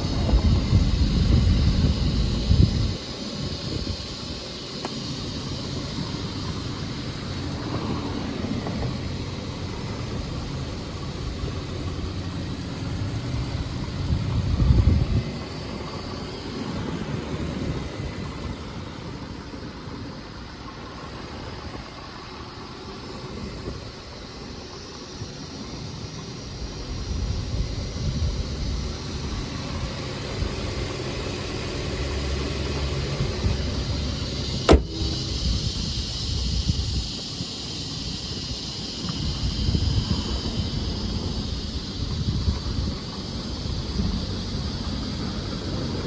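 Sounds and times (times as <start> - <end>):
car engine idling: 0.0 - 46.0.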